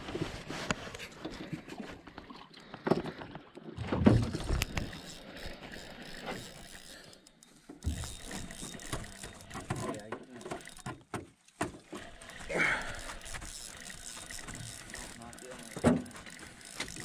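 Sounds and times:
fishing gear clicks and knocks: 0.7 - 17.0
fishing reel cranking: 4.1 - 11.0, 11.9 - 17.0.

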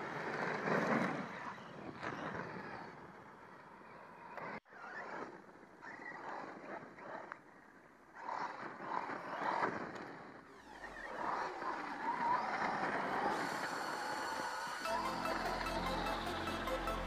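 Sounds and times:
electric motor whining: 10.5 - 17.0.

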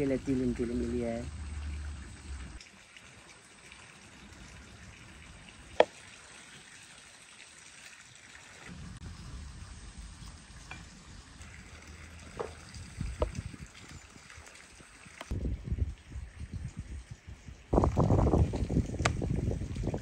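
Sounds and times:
low rumble: 8.7 - 10.6.

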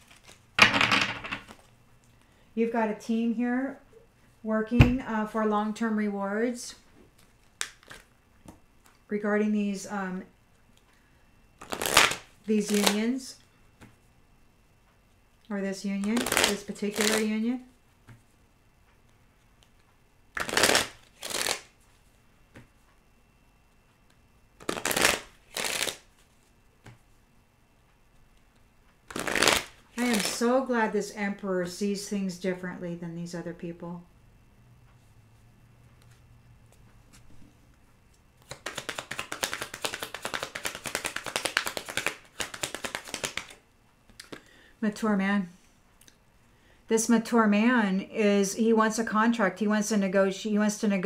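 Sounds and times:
cards being shuffled: 0.0 - 0.4, 7.2 - 8.6, 11.6 - 13.0, 16.0 - 17.4, 20.4 - 22.7, 24.6 - 27.0, 29.1 - 30.4, 38.4 - 43.6.

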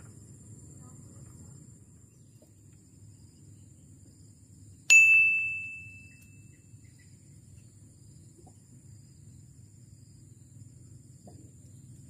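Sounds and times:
bright bell ding: 4.9 - 6.2.

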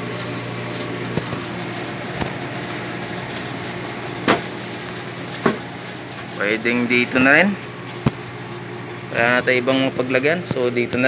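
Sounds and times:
machine hum: 0.0 - 11.0.

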